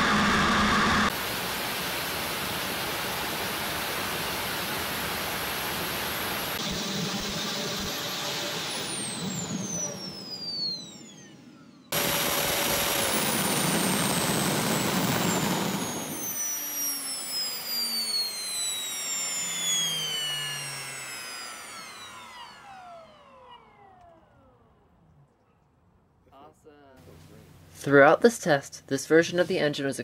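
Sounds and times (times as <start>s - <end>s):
jet engine rushing noise: 0.0s - 23.7s
compressor high whine: 0.0s - 25.5s.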